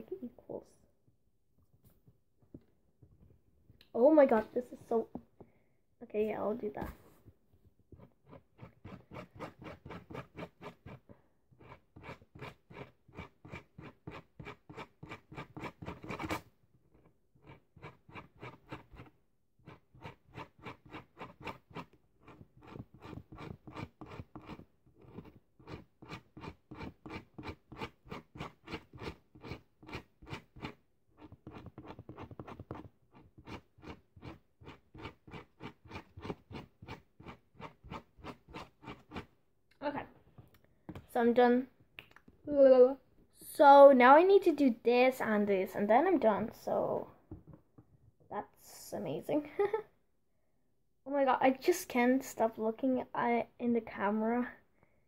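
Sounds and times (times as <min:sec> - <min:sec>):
marker scratching on hair: 0:08.0 - 0:39.3.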